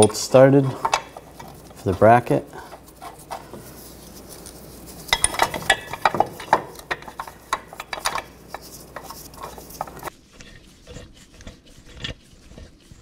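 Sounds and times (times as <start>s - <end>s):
metal bolts clinking: 0.0s - 3.6s, 4.8s - 10.1s.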